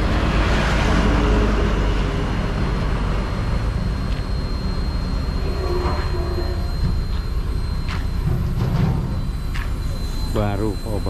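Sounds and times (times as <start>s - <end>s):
road noise: 0.0s - 11.0s.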